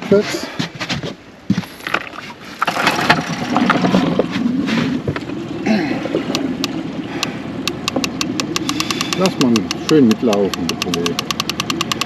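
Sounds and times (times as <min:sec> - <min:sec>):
outboard motor running: 0:01.8 - 0:12.0
sharp clicks: 0:06.3 - 0:12.0.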